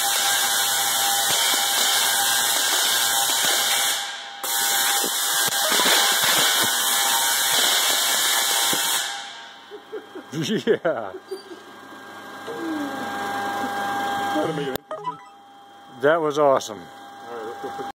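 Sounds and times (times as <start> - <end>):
tesla coil arcs discharging: 0.0 - 9.6.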